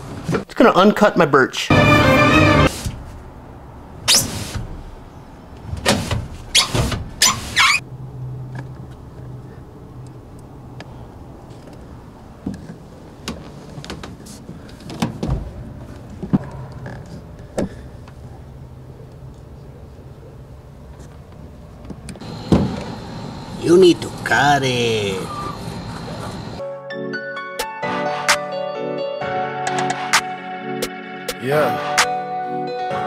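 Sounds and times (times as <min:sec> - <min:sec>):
knocks and bumps: 0:14.8 - 0:17.8.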